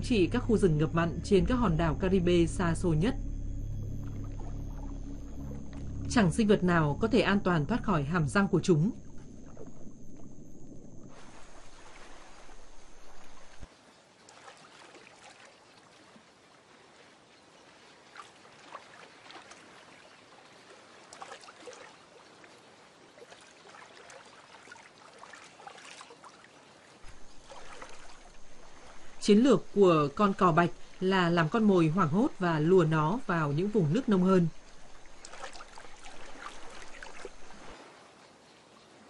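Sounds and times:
low rumble: 0:00.0 - 0:13.7
small splashes and drips in water: 0:11.1 - 0:29.2, 0:34.5 - 0:37.8.

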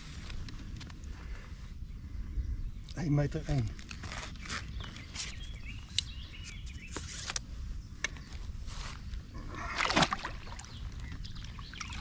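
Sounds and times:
fish splashing into water: 0:09.5 - 0:10.8.

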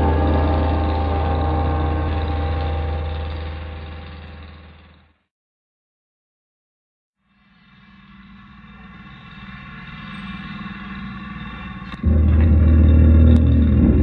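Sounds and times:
loud low rumble: 0:00.0 - 0:05.0, 0:11.9 - 0:14.0
droning hum with overtones: 0:00.0 - 0:05.2, 0:07.4 - 0:14.0.

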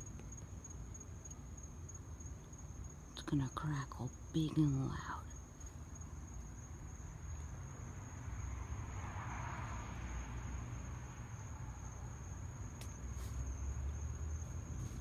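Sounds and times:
crickets trilling: 0:00.0 - 0:15.0
soft rush of noise: 0:05.0 - 0:15.0.

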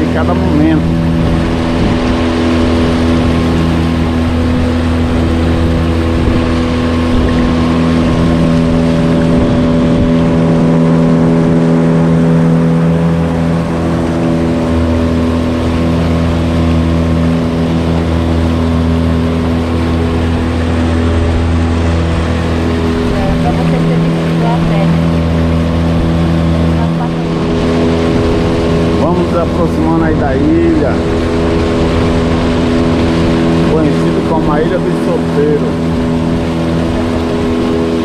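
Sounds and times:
outboard motor droning: 0:00.0 - 0:38.0
water rushing and spray: 0:00.0 - 0:38.0.

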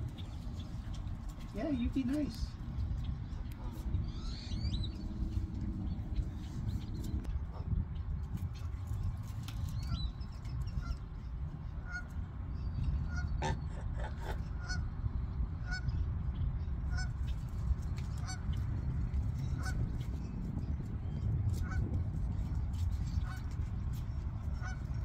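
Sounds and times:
geese honking: 0:11.8 - 0:12.1, 0:14.6 - 0:14.8, 0:16.9 - 0:17.2, 0:24.5 - 0:24.8.

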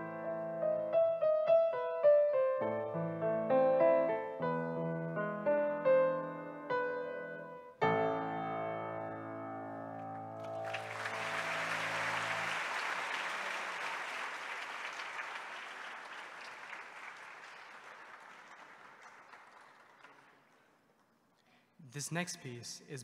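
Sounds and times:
piano chord ringing: 0:00.0 - 0:12.4
audience applause: 0:10.4 - 0:20.7.

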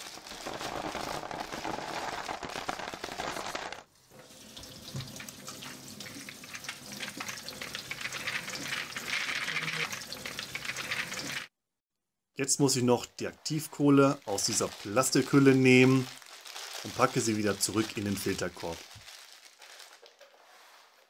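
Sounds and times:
plastic bag crinkling: 0:00.0 - 0:03.9, 0:07.0 - 0:11.4, 0:14.2 - 0:21.0
tap water running and splashing: 0:04.0 - 0:11.5.

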